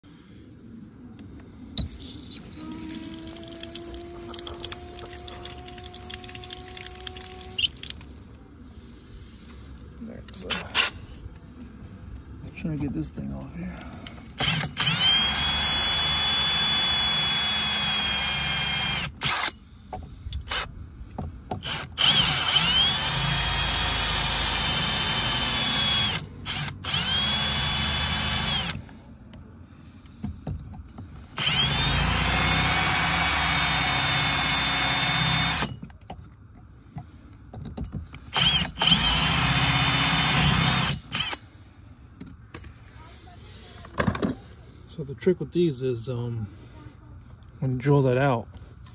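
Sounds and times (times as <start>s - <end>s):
power drill drilling metal: 1.8s - 7.7s, 14.4s - 19.7s, 21.6s - 28.8s, 31.4s - 35.9s, 38.3s - 41.5s.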